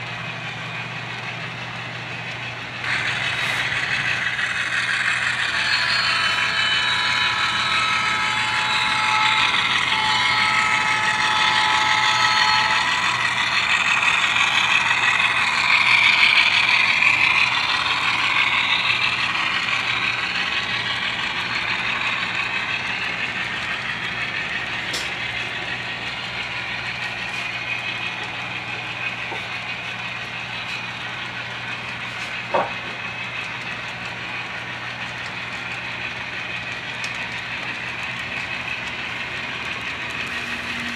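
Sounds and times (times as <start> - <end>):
model train rolling and whirring: 0.0 - 40.9
steady high tones: 2.9 - 28.2.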